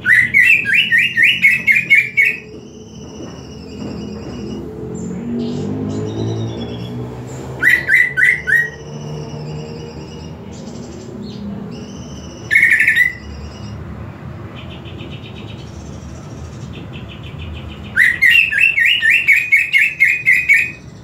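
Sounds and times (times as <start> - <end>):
bird singing loud phrases: 0.0 - 21.0.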